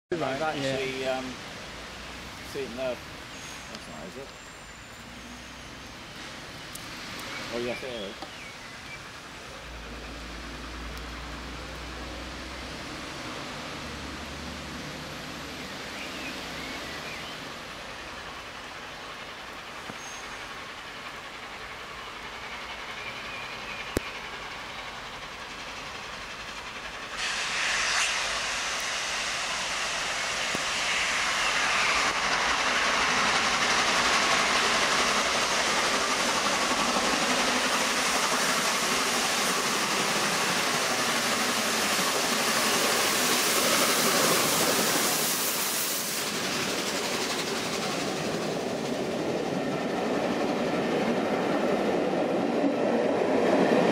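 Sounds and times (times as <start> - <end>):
steam locomotive exhaust: 0.2 - 52.5
train wheel clatter: 18.0 - 53.9.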